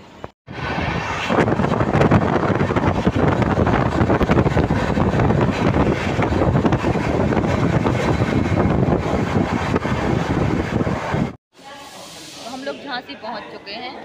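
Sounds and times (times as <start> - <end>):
train wheels rumbling on rails: 0.0 - 11.4
wind buffeting microphone: 0.5 - 11.4.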